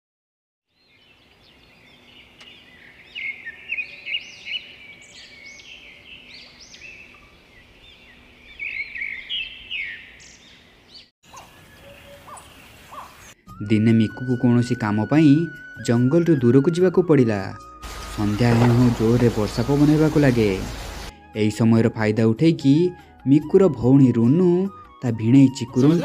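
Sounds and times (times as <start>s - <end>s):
small birds chirping: 0.7s - 13.4s.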